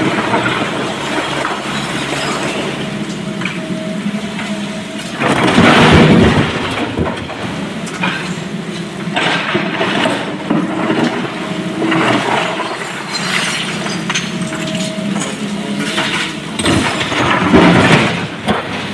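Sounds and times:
diesel engine running: 0:00.0 - 0:18.9
rocks clattering in excavator bucket: 0:05.1 - 0:08.5, 0:09.1 - 0:18.9
stone crashing into steel truck bed: 0:05.3 - 0:07.4, 0:16.6 - 0:18.9.

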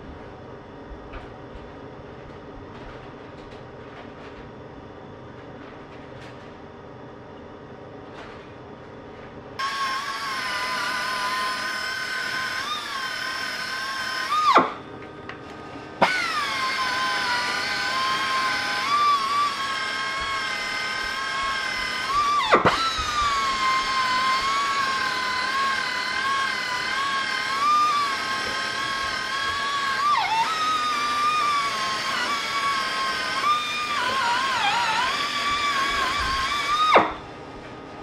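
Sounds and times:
air polisher whining: 0:09.6 - 0:14.9, 0:16.0 - 0:37.2.

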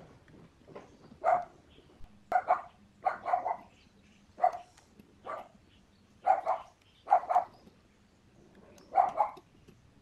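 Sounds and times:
dog barking: 0:01.2 - 0:01.5, 0:02.3 - 0:03.7, 0:04.4 - 0:05.6, 0:06.2 - 0:07.5, 0:08.9 - 0:09.4.

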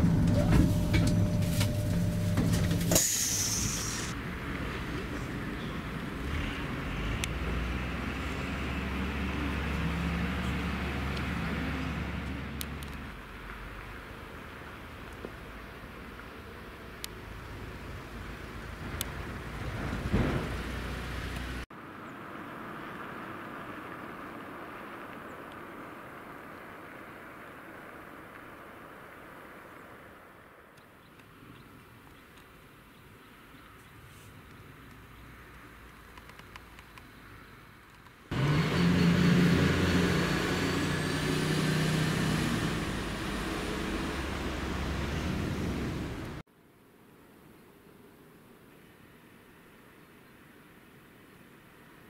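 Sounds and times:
thin high whine: 0:00.0 - 0:04.2
low rumble: 0:00.0 - 0:07.8
distant hum: 0:00.0 - 0:12.7
vehicle running with droning tones: 0:00.0 - 0:30.9, 0:34.5 - 0:46.4.

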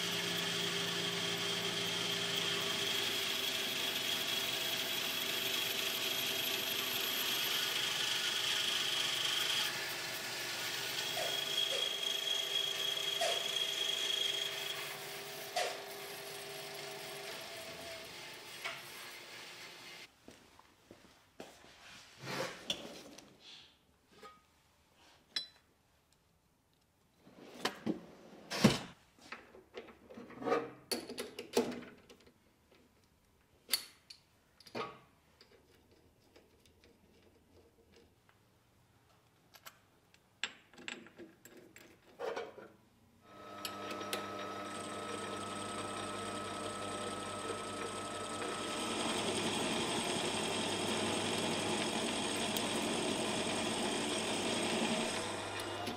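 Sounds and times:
lathe running with faint whine: 0:00.0 - 0:20.1, 0:43.3 - 0:55.9
lathe tool cutting metal: 0:00.0 - 0:20.1, 0:43.4 - 0:55.9.

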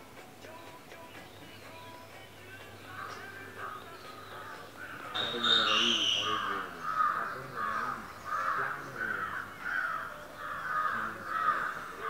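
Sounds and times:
shrill bird call: 0:02.8 - 0:12.0
crow cawing: 0:02.9 - 0:03.8, 0:04.4 - 0:12.0.

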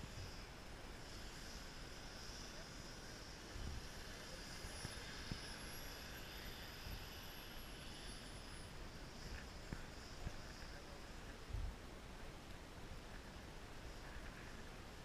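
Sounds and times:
distant jet turbine whine: 0:00.0 - 0:15.0
wind rumble on microphone: 0:02.8 - 0:07.5, 0:08.9 - 0:15.0.

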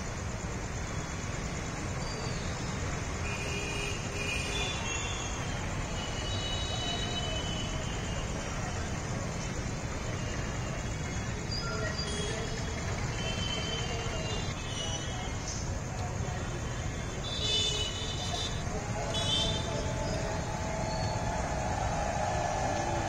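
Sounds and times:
outdoor background noise: 0:00.0 - 0:23.0.

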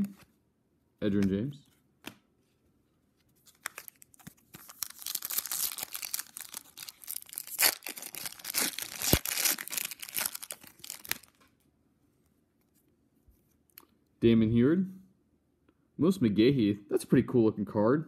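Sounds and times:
foil wrapper crinkling and tearing: 0:03.5 - 0:11.4.

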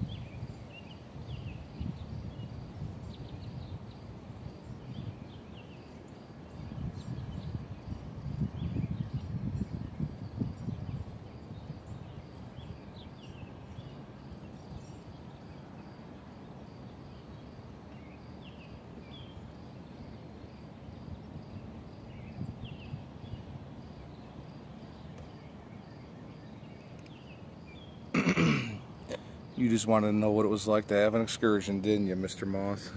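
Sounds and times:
bird chirps: 0:08.5 - 0:16.0.

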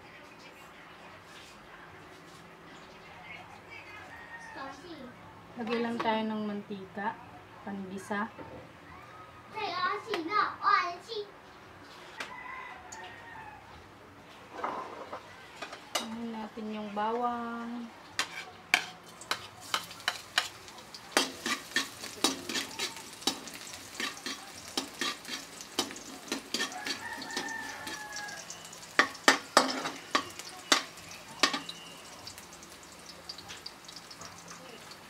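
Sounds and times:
metal spatula clacking on wok: 0:18.2 - 0:31.9
garlic sizzling in oil: 0:18.2 - 0:35.0.

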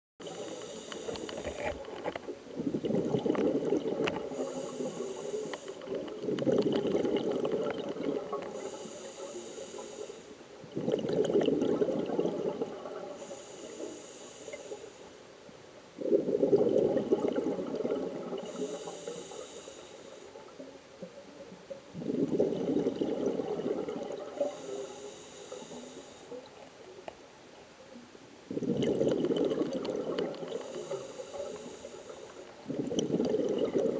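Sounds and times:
hissing regulator inhale: 0:00.2 - 0:01.9, 0:04.1 - 0:06.4, 0:08.4 - 0:10.4, 0:13.1 - 0:15.2, 0:18.4 - 0:20.4, 0:24.4 - 0:26.5, 0:30.5 - 0:33.0
bubbling exhale: 0:02.5 - 0:15.0, 0:16.0 - 0:20.6, 0:22.0 - 0:26.6, 0:28.5 - 0:33.9.

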